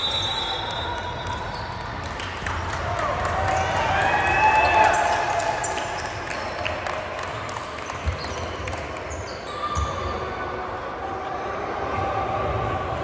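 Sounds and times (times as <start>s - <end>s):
sneakers squeaking on court: 8.0s - 10.2s.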